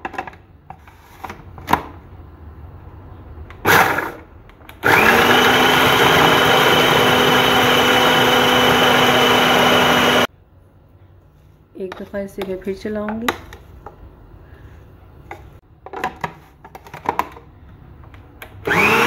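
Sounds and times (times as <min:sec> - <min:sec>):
food processor motor whining: 0:03.7 - 0:04.2, 0:04.8 - 0:10.3, 0:18.6 - 0:19.0.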